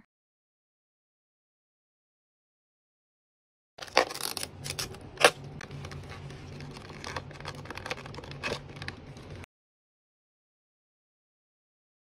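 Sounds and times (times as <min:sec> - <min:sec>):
plastic packaging crackling: 0:03.8 - 0:09.4.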